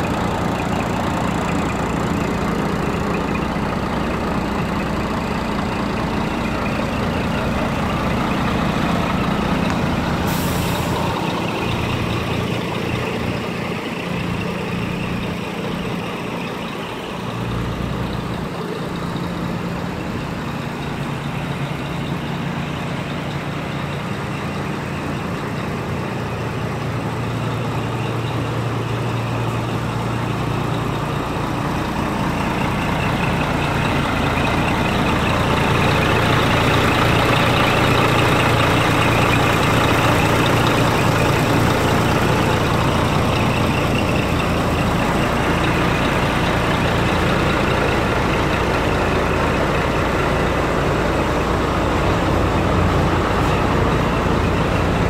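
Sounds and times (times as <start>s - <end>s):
diesel truck engine idling: 0.0s - 55.0s.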